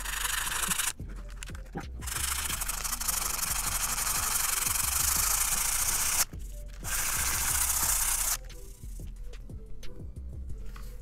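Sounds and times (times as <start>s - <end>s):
sandpaper rubbing: 0.0s - 6.2s.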